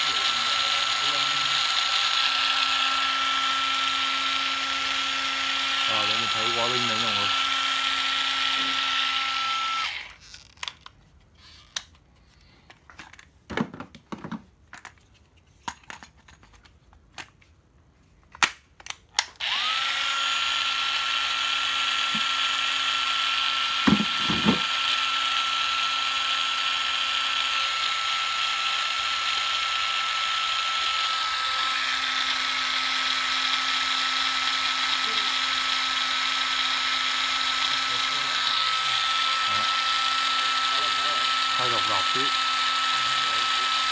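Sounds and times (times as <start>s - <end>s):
screwdriver motor whine: 0.0s - 11.9s, 19.3s - 43.9s
plastic clicks and knocks: 12.7s - 15.0s.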